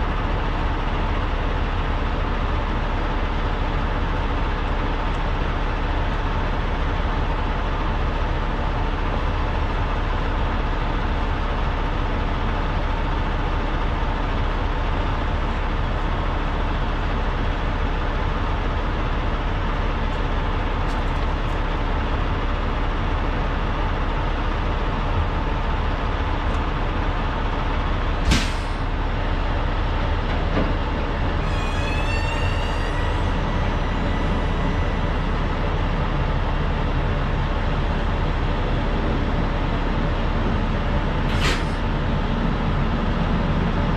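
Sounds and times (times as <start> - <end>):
diesel trucks idling: 0.0 - 43.9
air brake burst: 28.2 - 28.9, 41.3 - 41.9
thin high squeal: 31.4 - 35.1.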